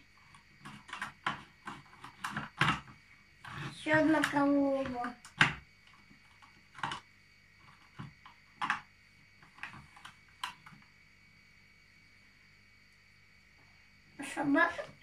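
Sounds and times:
plastic toys clicking and knocking: 0:00.2 - 0:10.8.

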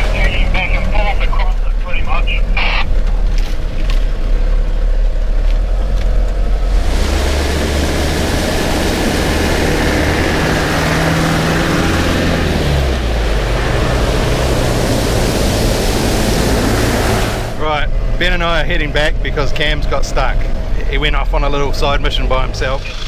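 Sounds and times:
muffled engine running: 0:00.0 - 0:23.0
water splashing: 0:06.1 - 0:17.6.

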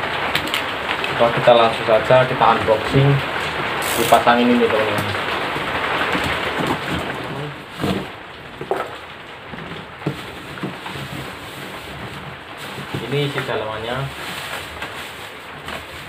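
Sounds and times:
plastic rustling: 0:00.0 - 0:16.0
tape and cardboard tearing: 0:03.8 - 0:04.3.

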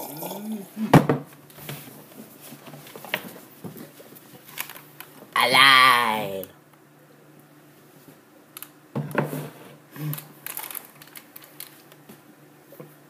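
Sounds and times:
headphones plastic clicks and rustling: 0:04.4 - 0:05.2, 0:10.1 - 0:12.0.

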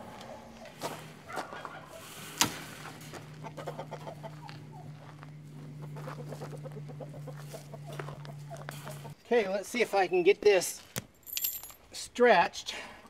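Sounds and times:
steady low hum: 0:00.0 - 0:09.6
chickens clucking: 0:00.1 - 0:09.2.

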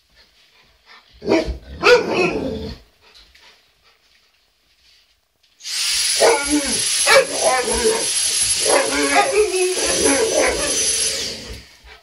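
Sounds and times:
vacuum cleaner whining: 0:05.6 - 0:12.0
dogs barking and vocalizing: 0:06.1 - 0:12.0.

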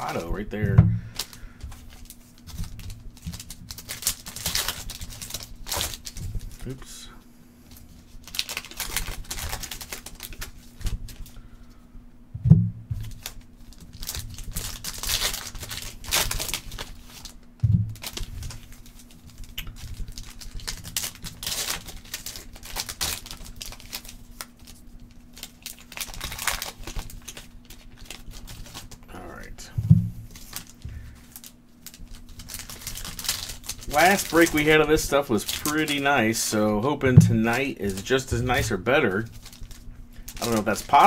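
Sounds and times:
foil wrappers tearing and crinkling: 0:00.0 - 0:07.1, 0:07.7 - 0:11.4, 0:13.0 - 0:29.5, 0:30.3 - 0:41.0
dull thumps: 0:00.6 - 0:01.1, 0:12.4 - 0:13.0, 0:17.6 - 0:18.0, 0:29.7 - 0:30.2.

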